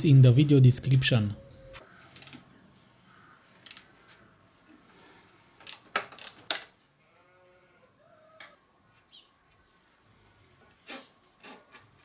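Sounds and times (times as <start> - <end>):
ratchet wrench clicking: 2.2 - 2.4, 3.6 - 3.9.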